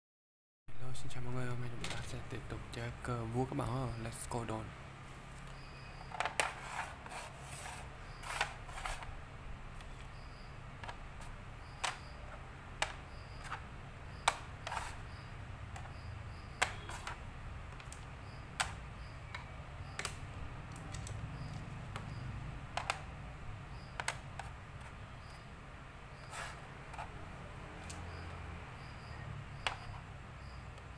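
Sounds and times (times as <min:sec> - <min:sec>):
game pieces clicking on board: 0:10.8 - 0:23.2, 0:23.8 - 0:25.4, 0:26.2 - 0:28.4, 0:29.6 - 0:30.9.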